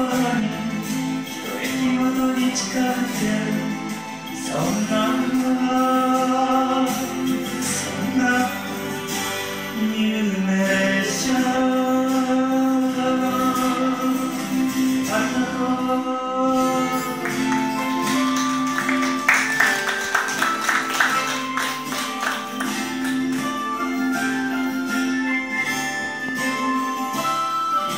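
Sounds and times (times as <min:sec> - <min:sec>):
acoustic guitar: 0:00.0 - 0:27.9
man singing long notes: 0:01.5 - 0:08.8, 0:09.8 - 0:17.5.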